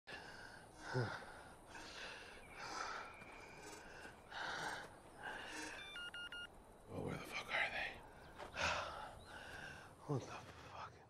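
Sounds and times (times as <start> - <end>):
man breathing hard: 0.1 - 5.8, 8.5 - 10.0.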